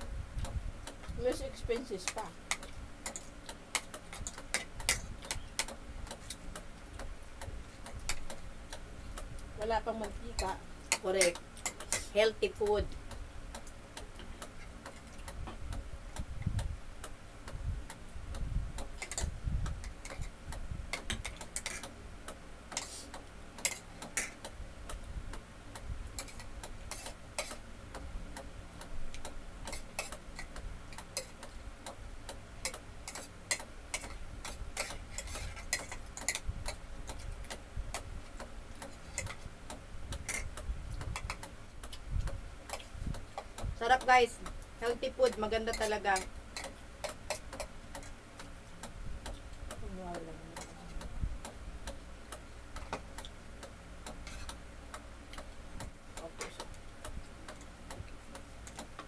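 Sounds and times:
faint steady hum: 0.0 - 59.0
cutlery tapping against plates: 19.0 - 20.3, 20.9 - 21.9, 23.6 - 24.5, 32.6 - 37.6, 45.3 - 48.1.

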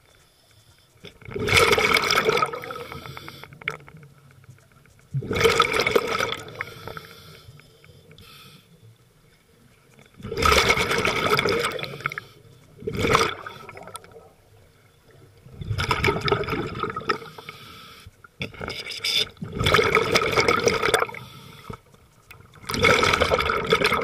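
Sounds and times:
underwater breath bubbles: 1.0 - 3.8, 5.1 - 8.8, 10.2 - 14.4, 15.1 - 21.9, 22.6 - 24.0.

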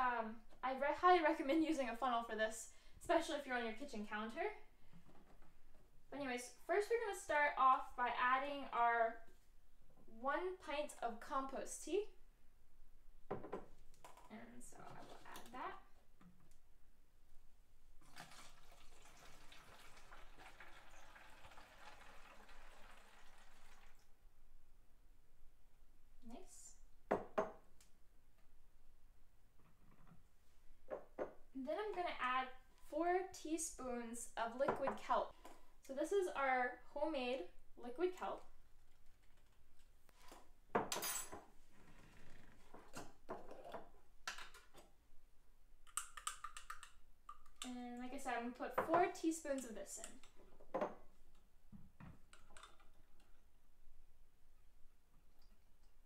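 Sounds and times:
liquid pouring into plastic jug: 18.0 - 24.1.

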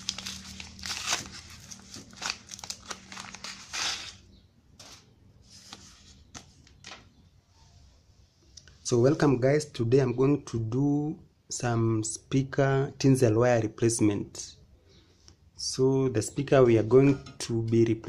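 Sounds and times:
paper packet crinkling: 0.0 - 7.0.

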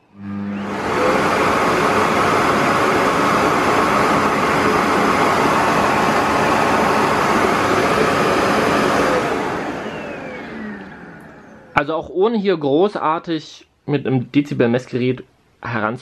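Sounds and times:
vacuum motor running down: 0.0 - 11.8
vacuum cleaner running: 0.0 - 11.9.

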